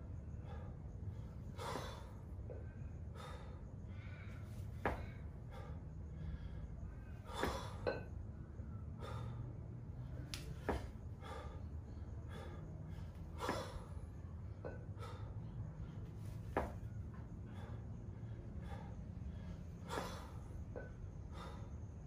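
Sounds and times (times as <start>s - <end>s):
man breathing forcefully: 0.0s - 22.0s.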